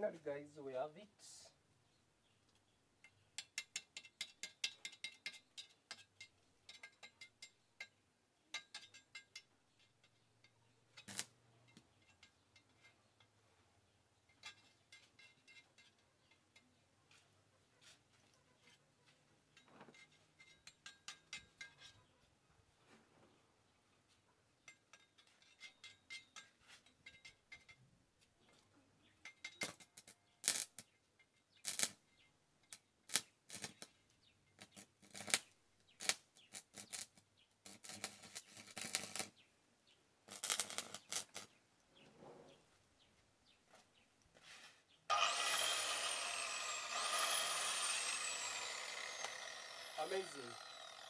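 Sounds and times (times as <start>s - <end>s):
metallic clinks and knocks: 3.0s - 13.3s, 14.2s - 16.8s
metal scraping: 44.4s - 51.0s.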